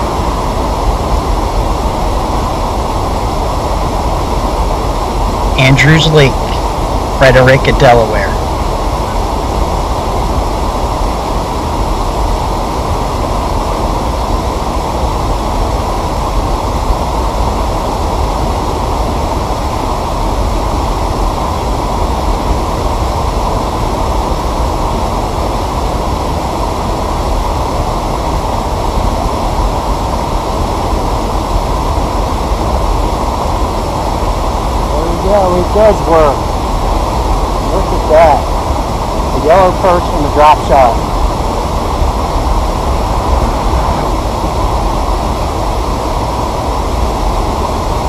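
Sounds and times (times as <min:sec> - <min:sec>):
water rushing over waterfall: 0:00.0 - 0:48.0.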